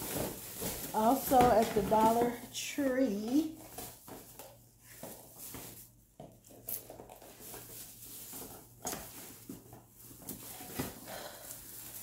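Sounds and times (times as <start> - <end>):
packaging rustling and knocks: 0.0 - 2.5.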